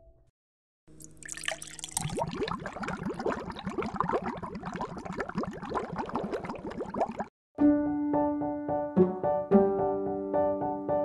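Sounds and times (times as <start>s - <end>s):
water bubbling: 1.0s - 7.3s.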